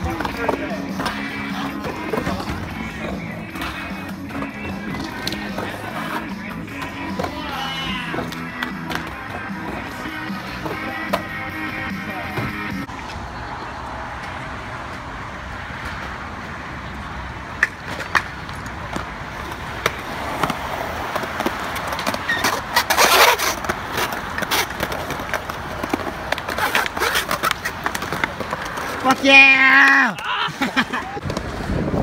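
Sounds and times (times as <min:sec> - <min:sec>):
skateboard clacking on ground: 0:00.0 - 0:11.6, 0:17.5 - 0:31.8
skateboard scraping rush: 0:00.0 - 0:13.1, 0:17.8 - 0:32.0
skateboard wheels rolling on concrete: 0:00.0 - 0:32.0.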